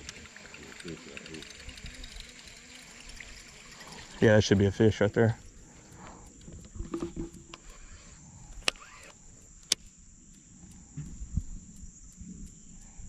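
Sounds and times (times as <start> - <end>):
insects droning high-pitched: 0.0 - 13.0
sharp clicks: 0.0 - 13.0.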